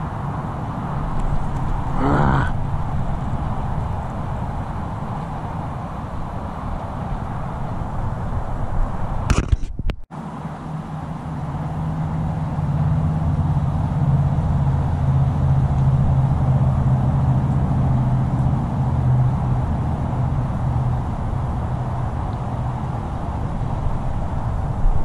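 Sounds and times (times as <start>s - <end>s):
low engine drone: 0.0s - 9.6s, 10.2s - 25.0s.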